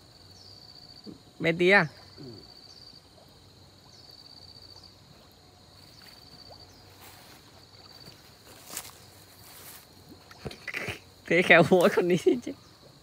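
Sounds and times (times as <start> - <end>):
insect trilling: 0.0 - 13.0
faint splashes: 2.4 - 13.0
water lapping and sloshing: 3.1 - 11.1.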